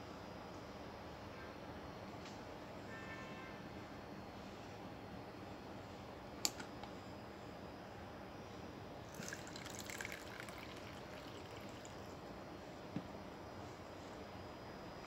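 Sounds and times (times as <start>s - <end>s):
drink pouring into cup: 9.1s - 12.2s.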